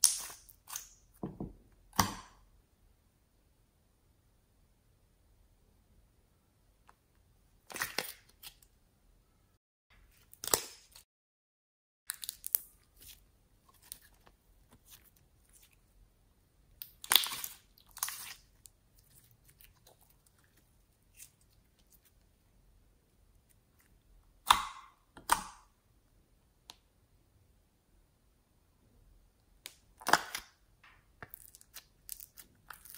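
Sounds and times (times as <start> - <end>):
slime crackling and squishing: 16.8 - 22.2, 31.2 - 32.9.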